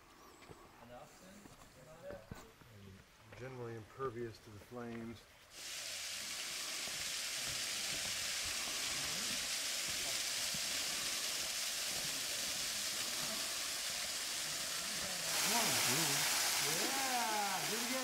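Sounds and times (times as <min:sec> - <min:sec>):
waterfall rushing hiss: 0:05.5 - 0:18.0.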